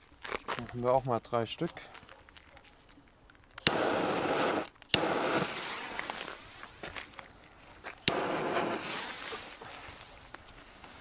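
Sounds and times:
jet torch lighter hissing: 3.6 - 6.4, 8.0 - 9.8.

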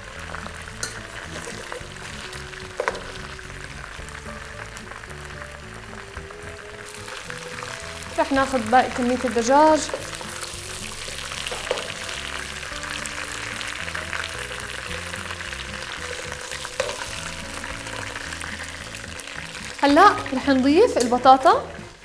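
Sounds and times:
chicken sizzling in hot oil: 0.0 - 22.0
metal tongs clicking against pot: 0.8 - 1.0, 21.0 - 21.3.

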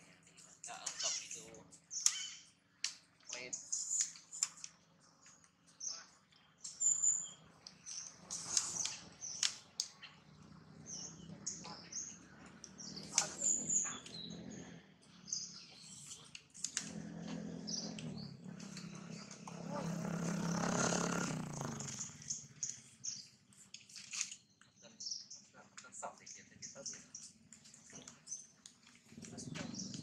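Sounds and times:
small birds chirping: 0.0 - 30.0
rustles and snaps in branches: 7.8 - 10.1, 23.7 - 24.4.

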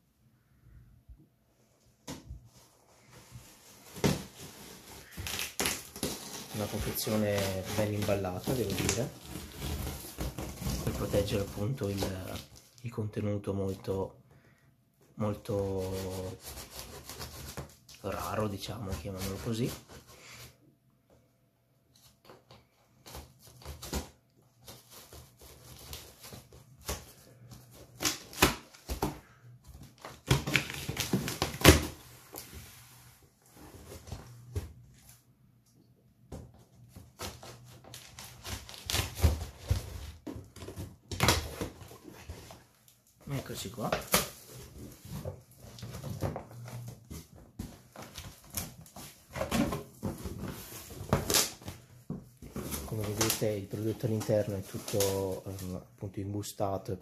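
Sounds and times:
plastic wrapping crinkling: 3.6 - 13.0, 52.5 - 55.8.

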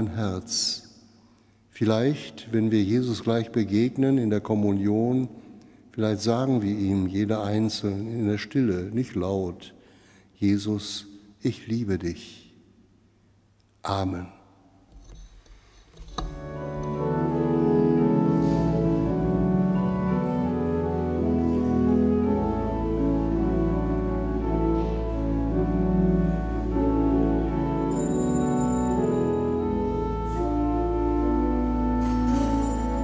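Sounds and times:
organ chords over deep bass: 16.2 - 33.0.

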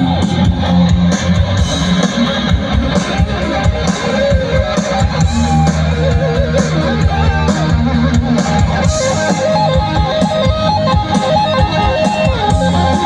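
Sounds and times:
amplified guitar melody: 0.0 - 13.0
bass line: 0.0 - 13.0.

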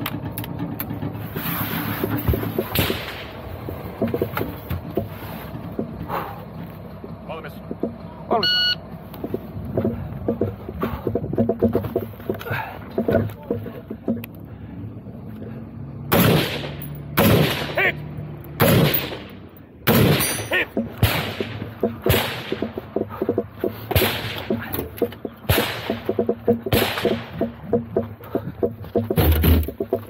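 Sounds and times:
gear rattle: 0.0 - 15.6, 16.6 - 30.0
echoing gunshots: 2.7 - 3.4, 16.1 - 17.8, 18.6 - 22.8, 23.9 - 24.6, 25.4 - 27.4.

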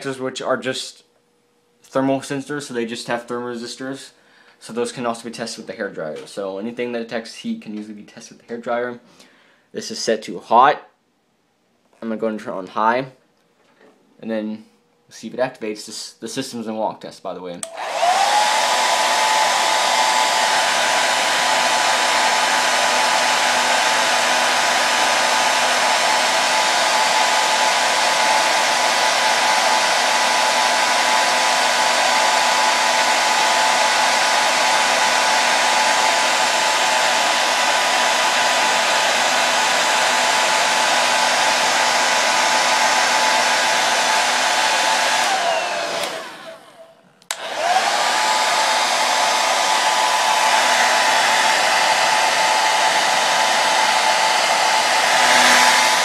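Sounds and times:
hair dryer running: 17.6 - 56.0.

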